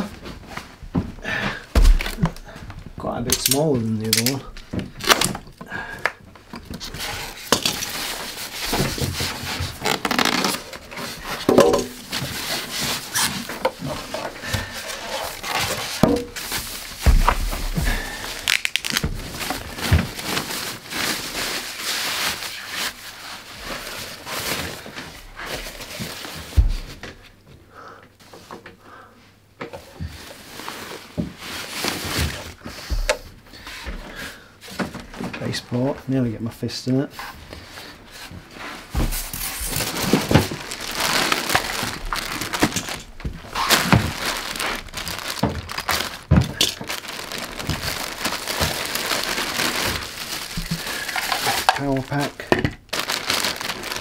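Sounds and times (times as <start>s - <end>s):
plastic bag rustling and crinkling: 1.7s - 5.7s, 6.4s - 27.2s, 30.1s - 33.7s, 37.1s - 54.0s
foam packing blocks pulled off: 6.8s - 23.0s, 38.6s - 54.0s.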